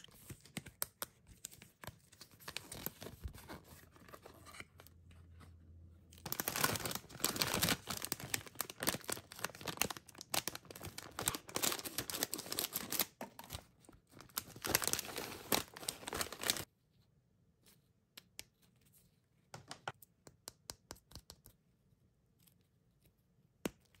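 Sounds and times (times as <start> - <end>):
plastic pouch crinkling: 6.2 - 16.7.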